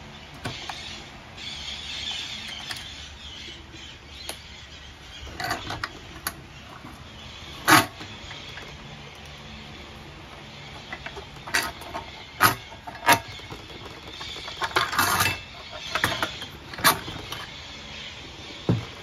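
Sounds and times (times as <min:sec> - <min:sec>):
rattling metal scrape: 0:14.3 - 0:17.5.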